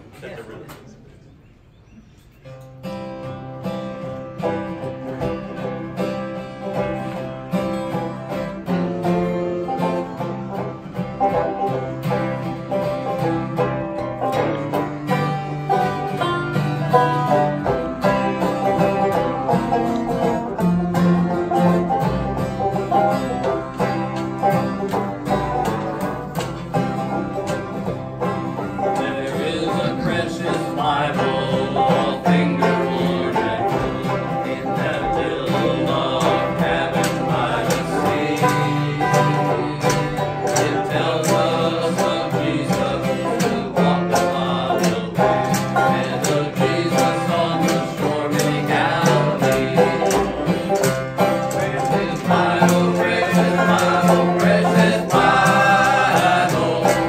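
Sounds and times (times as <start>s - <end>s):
bluegrass band playing: 2.4s - 57.0s
men singing: 16.0s - 20.2s, 28.4s - 57.0s.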